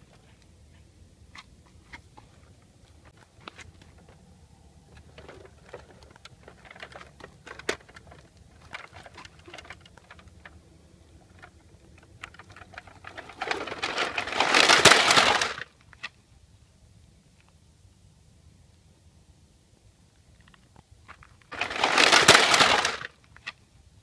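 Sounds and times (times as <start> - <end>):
toy trucks rattling on sand: 4.8 - 16.2, 21.1 - 23.6
toys clattering as they tip over: 4.9 - 15.7, 21.1 - 23.6.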